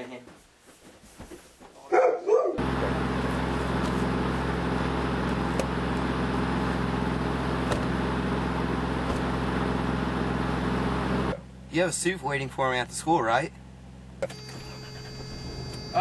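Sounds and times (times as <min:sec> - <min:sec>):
road noise: 0:02.6 - 0:14.2
car engine hum: 0:02.6 - 0:16.0.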